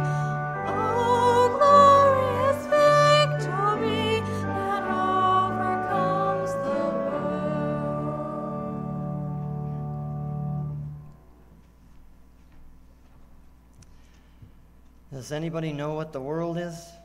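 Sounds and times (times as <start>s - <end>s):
person singing: 0.0s - 9.2s
keyboard accompaniment: 0.0s - 12.6s.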